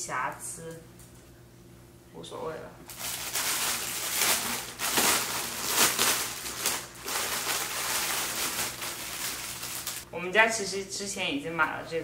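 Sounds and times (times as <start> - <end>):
plastic bag crinkling: 2.9 - 10.1.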